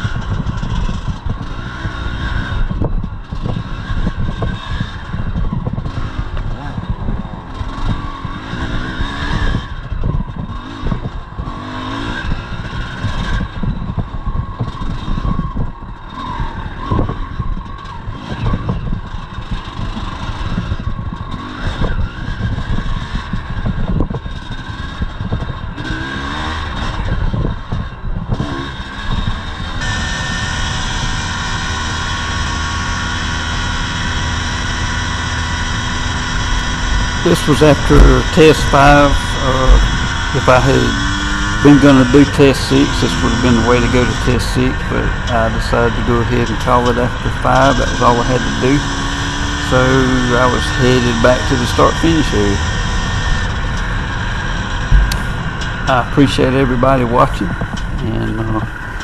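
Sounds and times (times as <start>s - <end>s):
motorcycle engine revving: 0.0s - 59.0s
steady even drone: 29.6s - 59.0s
bike clattering over bumps: 50.6s - 55.9s.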